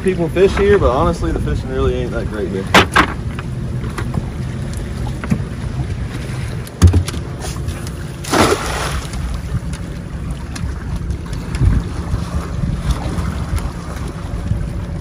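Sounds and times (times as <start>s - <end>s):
steady low rumble: 0.0s - 15.0s
cast net splashing on water: 8.2s - 9.2s.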